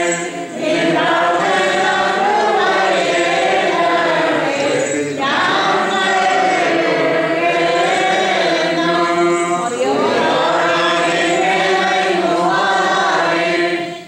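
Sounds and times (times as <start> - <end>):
group chanting a hymn: 0.0 - 14.0.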